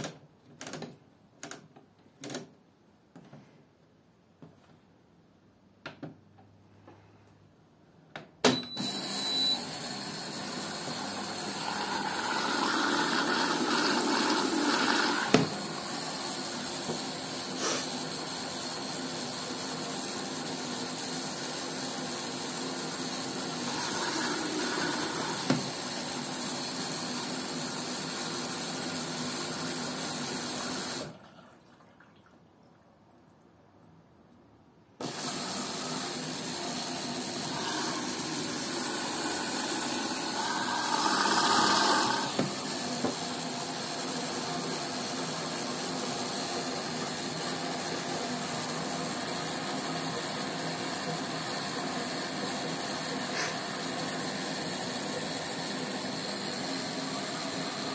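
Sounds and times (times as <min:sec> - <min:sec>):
water rushing into washing machine: 0:08.8 - 0:32.5, 0:35.0 - 0:57.9
inlet valve shutting off: 0:35.0 - 0:42.8.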